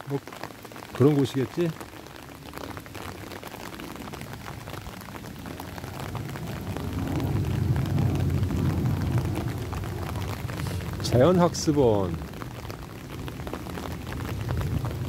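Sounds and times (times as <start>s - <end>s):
rain pattering on an umbrella: 0.0s - 15.0s
low rumble: 4.9s - 15.0s.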